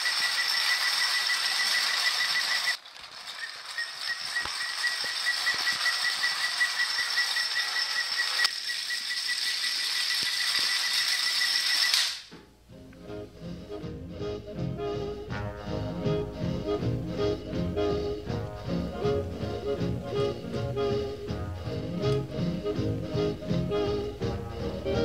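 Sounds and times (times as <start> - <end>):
clockwork toy train whirring: 0.0 - 12.3
fast even ticking: 3.7 - 11.3.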